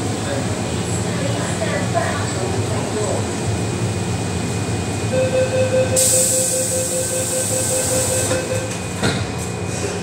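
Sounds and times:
train low hum: 0:00.0 - 0:10.0
rapid warning beeps: 0:05.2 - 0:08.7
train doors shutting: 0:06.0 - 0:10.0.

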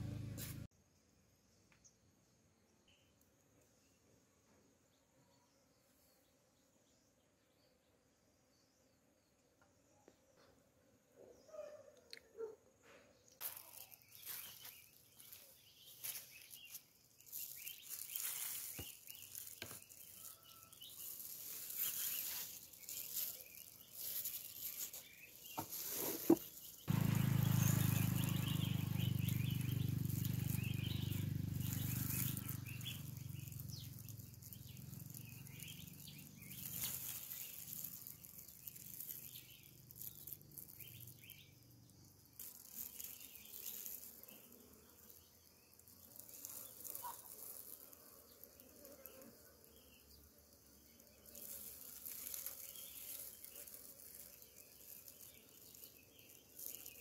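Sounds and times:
birds chirping: 0:13.3 - 0:41.6
honeybees buzzing: 0:13.4 - 0:41.5, 0:42.4 - 0:57.0.

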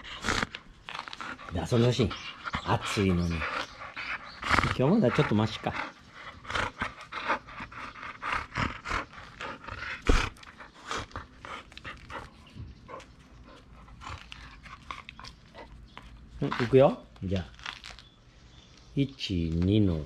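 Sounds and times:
puppy panting quickly: 0:01.1 - 0:16.7.

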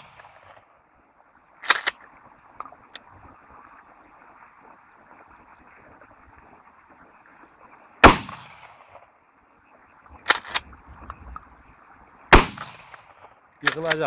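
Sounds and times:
shotgun pump clacks: 0:01.6 - 0:02.0, 0:10.2 - 0:10.8, 0:13.6 - 0:14.0
shotgun shot: 0:08.0 - 0:09.0, 0:12.3 - 0:14.0.

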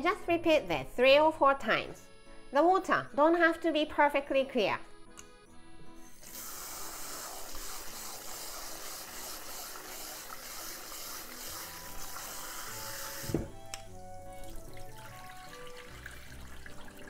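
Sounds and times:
faucet water stream into steel bowl: 0:06.2 - 0:13.4, 0:14.4 - 0:17.0.

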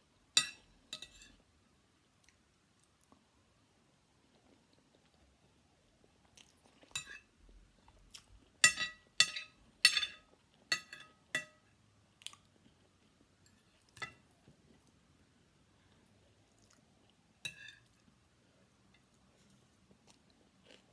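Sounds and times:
metal spoon clinking on ceramic plate: 0:00.4 - 0:01.3, 0:08.6 - 0:11.6.

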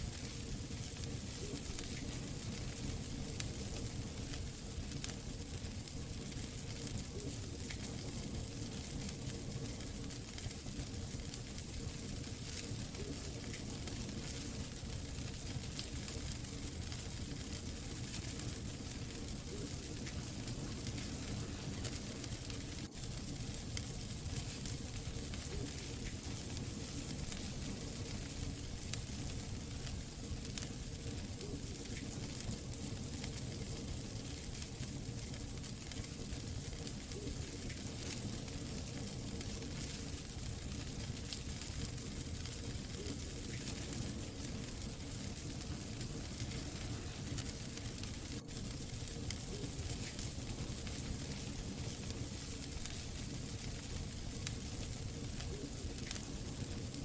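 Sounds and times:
wood fire crackling and popping: 0:00.0 - 0:57.0.

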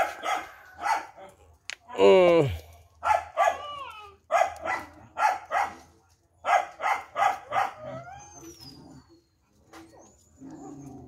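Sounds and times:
dogs barking: 0:00.0 - 0:01.3, 0:03.0 - 0:08.2
dog yelping: 0:03.1 - 0:05.8, 0:06.5 - 0:09.2.

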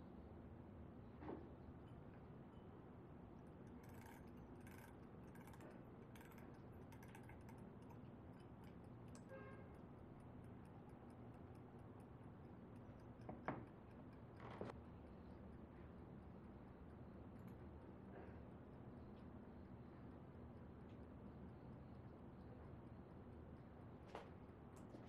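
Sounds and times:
low room hum: 0:00.0 - 0:25.0
small metal object ticking: 0:03.4 - 0:14.5.

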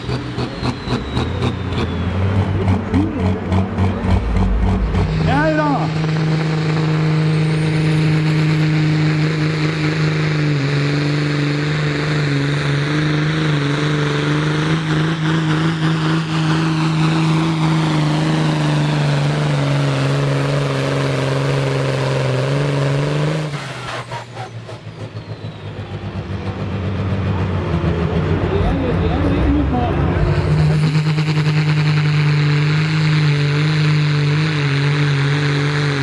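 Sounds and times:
diesel engine at high revs: 0:00.0 - 0:36.0
high whine falling in pitch: 0:04.0 - 0:07.8.

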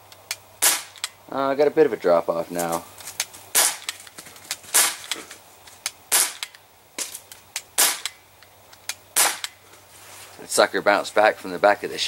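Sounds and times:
bb pistol shots: 0:00.6 - 0:01.2, 0:03.5 - 0:04.0, 0:04.7 - 0:05.2, 0:06.1 - 0:06.6, 0:07.8 - 0:08.2, 0:09.2 - 0:09.6.

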